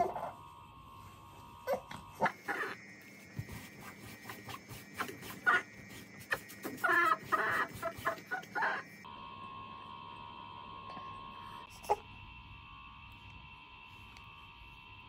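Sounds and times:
faint hum: 0:00.0 - 0:15.0
baby crying: 0:05.0 - 0:05.7.

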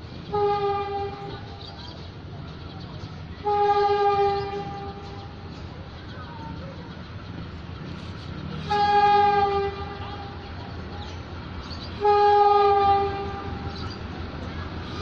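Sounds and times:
low engine rumble: 0:00.0 - 0:15.0
locomotive horn blasts: 0:00.3 - 0:01.4, 0:03.4 - 0:05.3, 0:08.6 - 0:10.4, 0:12.0 - 0:13.8.

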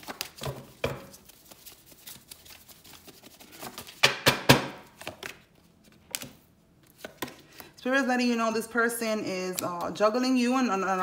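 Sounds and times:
cards being shuffled: 0:00.0 - 0:07.7.

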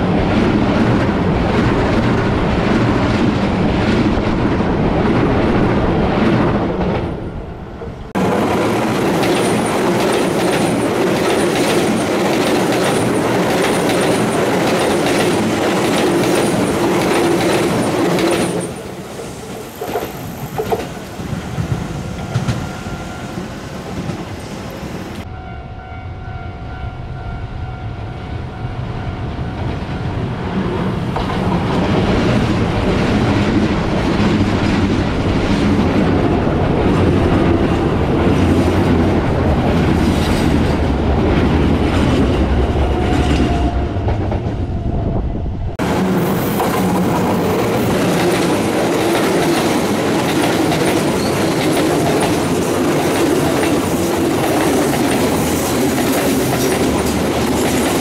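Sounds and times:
electric train passing: 0:00.0 - 0:58.0
wheels clicking over rail joints: 0:08.3 - 0:18.8.

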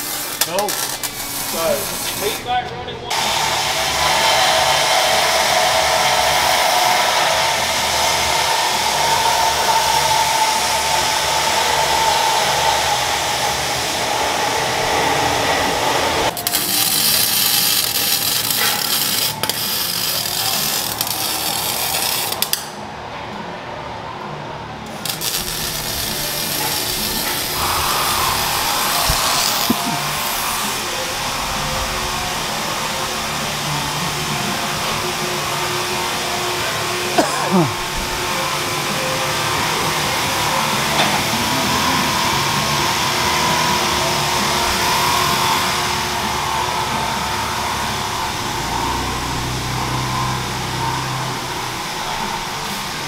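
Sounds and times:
welding hiss: 0:00.0 - 0:02.5, 0:03.1 - 0:22.8, 0:24.9 - 0:53.0
power tools whirring: 0:03.1 - 0:22.6, 0:24.9 - 0:39.4.

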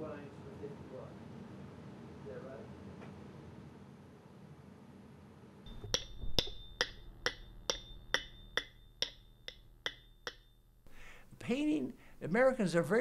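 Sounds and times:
sharp ringing ticks: 0:05.7 - 0:10.8.

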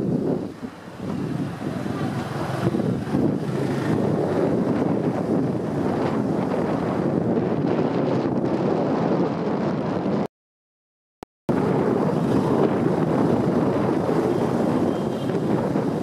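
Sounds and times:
wind buffeting microphone: 0:00.0 - 0:10.3, 0:11.5 - 0:16.0
moped engine running: 0:01.0 - 0:06.1.

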